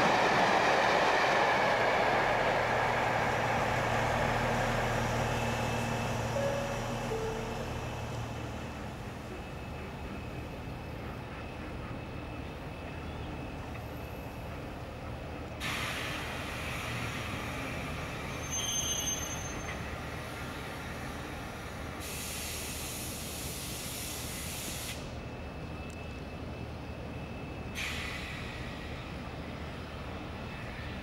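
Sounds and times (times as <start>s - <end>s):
diesel locomotive low rumble: 0.0s - 31.0s
brief high squeal: 18.3s - 19.9s
loud air hiss: 22.0s - 25.2s.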